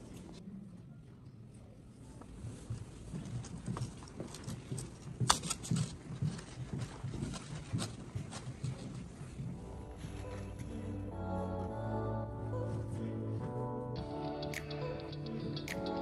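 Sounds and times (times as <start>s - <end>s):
footsteps on hard floor: 2.4s - 10.8s.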